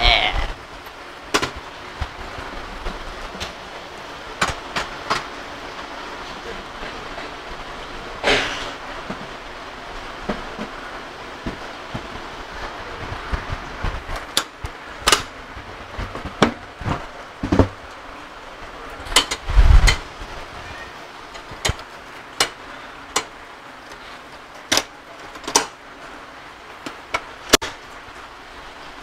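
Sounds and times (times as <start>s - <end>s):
heavy thump: 16.1s - 17.8s.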